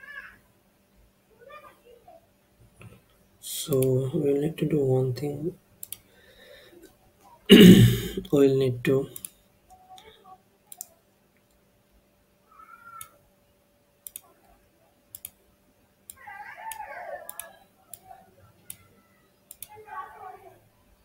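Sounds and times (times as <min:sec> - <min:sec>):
computer mouse clicks: 0:05.8 - 0:06.1, 0:09.2 - 0:10.1, 0:10.7 - 0:11.6, 0:14.0 - 0:14.3, 0:15.1 - 0:15.4, 0:16.1 - 0:18.8, 0:19.5 - 0:19.8.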